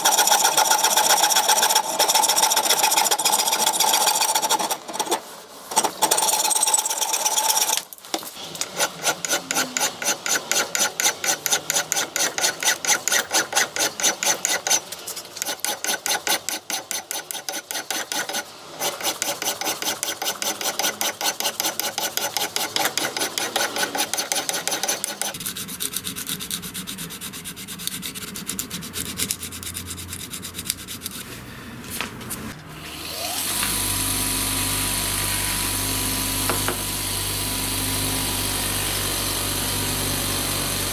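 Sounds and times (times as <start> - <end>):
bench grinder humming: 0.0 - 5.1, 8.4 - 28.5, 32.9 - 40.9
file rasping on metal: 0.0 - 5.2, 5.8 - 7.8, 8.4 - 31.3.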